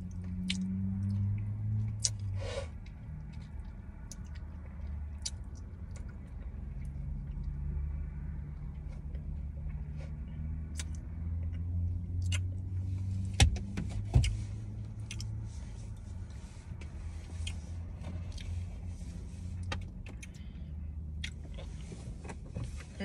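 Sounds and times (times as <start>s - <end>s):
chewing and mouth clicks: 0.1s - 7.6s, 8.7s - 12.7s, 14.2s - 15.4s, 17.4s - 18.6s, 19.6s - 21.9s.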